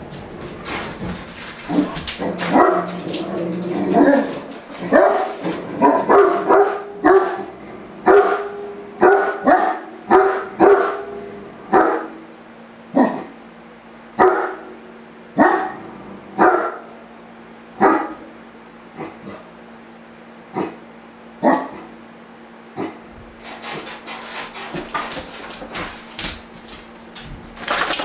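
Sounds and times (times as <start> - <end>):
dog barking deeply: 4.9 - 12.2, 15.4 - 16.9, 17.8 - 18.3, 21.4 - 21.9.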